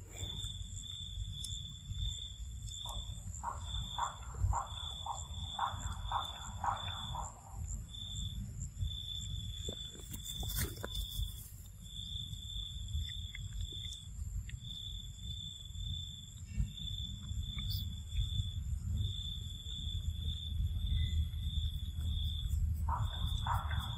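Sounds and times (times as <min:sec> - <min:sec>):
insect chirping: 0:00.0 - 0:23.9
brief rustle: 0:10.0 - 0:11.6
low rumble: 0:14.1 - 0:23.9
faint high whine: 0:15.6 - 0:23.9.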